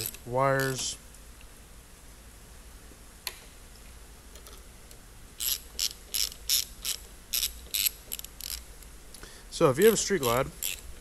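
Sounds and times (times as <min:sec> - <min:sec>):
socket ratchet clicking: 0:05.4 - 0:08.9, 0:09.8 - 0:10.9.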